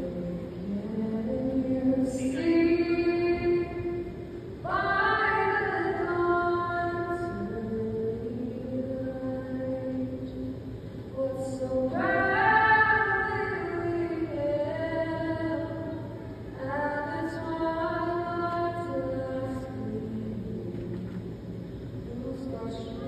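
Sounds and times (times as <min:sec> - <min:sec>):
woman singing unaccompanied: 0:00.0 - 0:21.1, 0:22.1 - 0:23.0.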